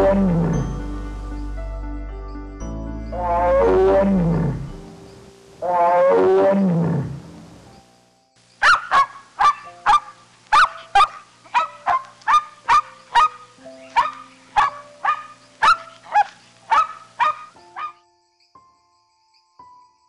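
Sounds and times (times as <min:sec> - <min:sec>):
soft background music: 0:00.0 - 0:08.6, 0:09.2 - 0:20.0
sharp animal calls: 0:05.6 - 0:07.6, 0:08.6 - 0:18.0.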